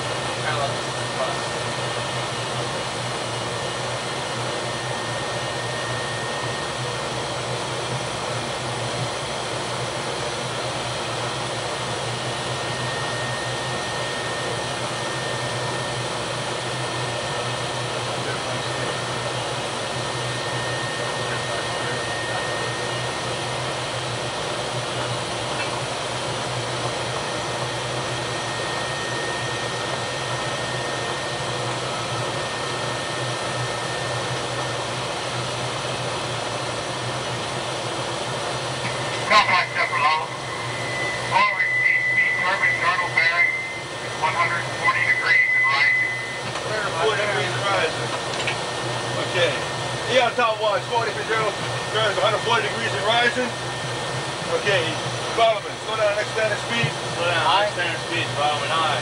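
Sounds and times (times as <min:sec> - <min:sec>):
machinery and ventilation rush: 0:38.7 - 0:59.0
thin high whine: 0:38.8 - 0:48.1, 0:48.8 - 0:59.0
low hum: 0:38.8 - 0:50.1.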